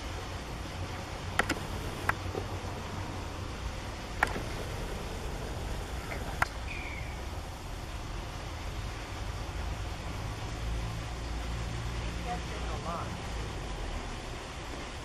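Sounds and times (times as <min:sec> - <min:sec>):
sharp clicks: 0:01.3 - 0:02.2, 0:04.2 - 0:05.3.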